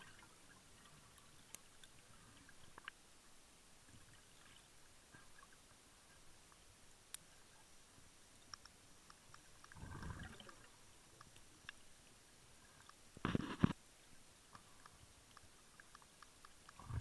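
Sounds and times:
faint clicks: 0:00.8 - 0:03.0, 0:08.3 - 0:11.9, 0:12.7 - 0:13.8, 0:14.4 - 0:17.0
muffled regulator bubbles underwater: 0:09.8 - 0:10.7.

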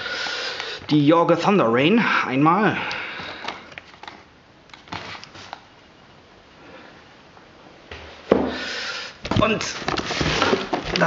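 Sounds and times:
rustling scrape: 0:09.6 - 0:11.0.

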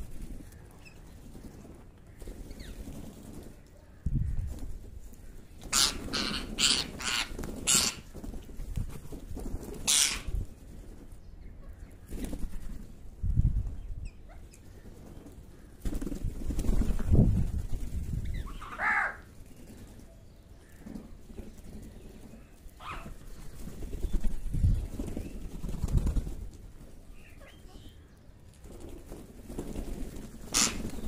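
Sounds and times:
harsh bird calls: 0:05.6 - 0:08.1, 0:18.3 - 0:19.3, 0:30.5 - 0:31.0.

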